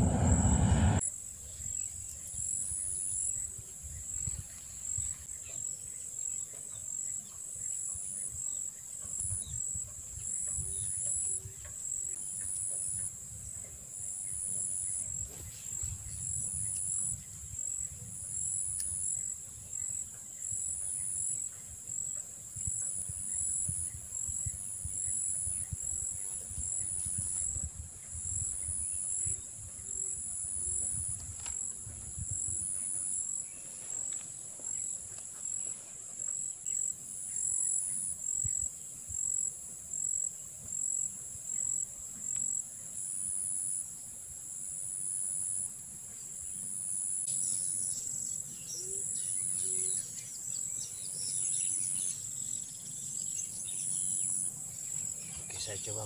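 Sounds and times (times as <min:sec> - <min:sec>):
low rumble: 0:00.0 - 0:01.0
pulsing higher insect call: 0:00.0 - 0:01.1.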